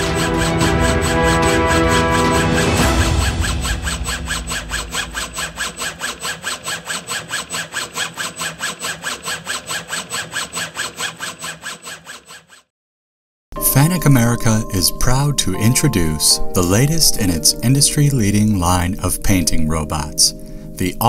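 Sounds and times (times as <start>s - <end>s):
rhythmic pulsing sound effect: 0.0s - 6.8s.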